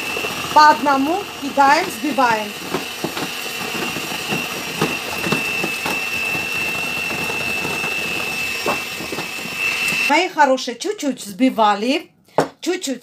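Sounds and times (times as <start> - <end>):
stand mixer motor whining: 0.0 - 10.1.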